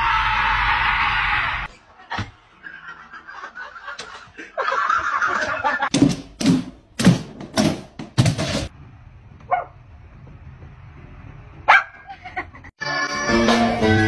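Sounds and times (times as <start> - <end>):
dog barking: 9.5 - 9.8, 11.7 - 12.0.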